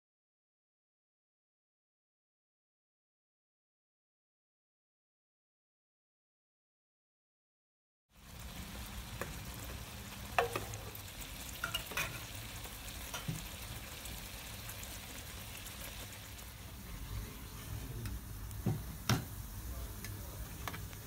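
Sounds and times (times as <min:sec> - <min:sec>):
crepes sizzling in sauce: 0:08.2 - 0:21.0
utensils clinking on pan: 0:10.4 - 0:11.0, 0:11.6 - 0:12.3, 0:13.1 - 0:13.5.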